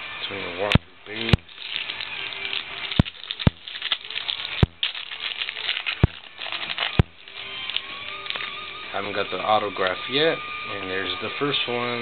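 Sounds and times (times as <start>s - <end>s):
trading cards rustling: 1.1s - 9.2s.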